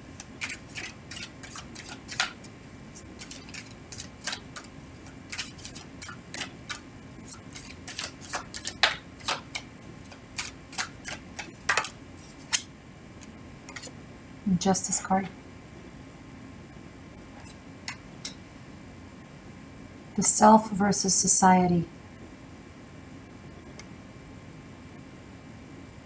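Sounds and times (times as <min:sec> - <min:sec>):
card edges snapping: 0:00.2 - 0:12.7
cards being shuffled: 0:00.2 - 0:12.7.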